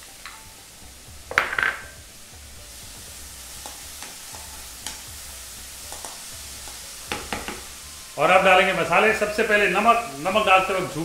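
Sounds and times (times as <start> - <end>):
vegetables sizzling in hot oil: 0.0 - 11.0
spatula scraping and tapping pan: 3.6 - 5.1, 5.8 - 7.7.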